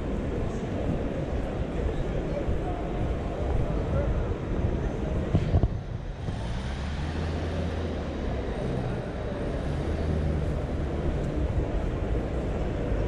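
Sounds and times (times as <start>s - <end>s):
vehicle engine rumbling: 0.0s - 13.0s.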